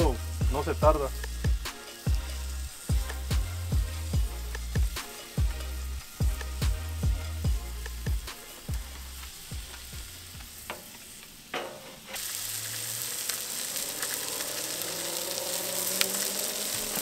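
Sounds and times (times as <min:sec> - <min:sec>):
soft background music: 0:00.0 - 0:11.1
fish sizzling on a grill: 0:00.0 - 0:17.0.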